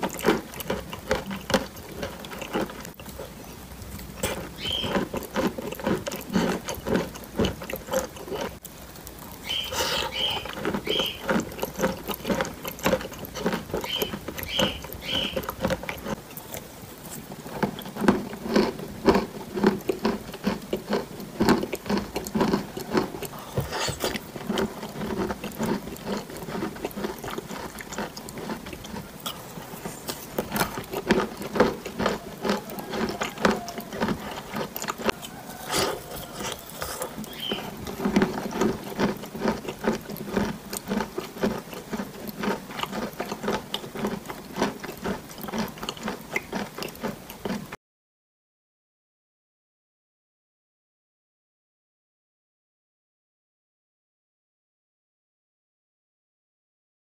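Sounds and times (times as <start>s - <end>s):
mouth eating sounds: 0.0s - 47.8s
spoon against lips: 34.8s - 37.8s.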